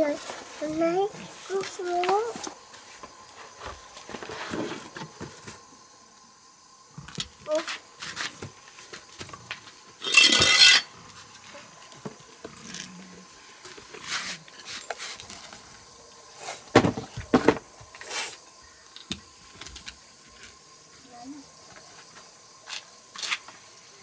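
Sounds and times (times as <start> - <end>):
cardboard box scraping on concrete: 3.6 - 5.5, 14.0 - 15.6.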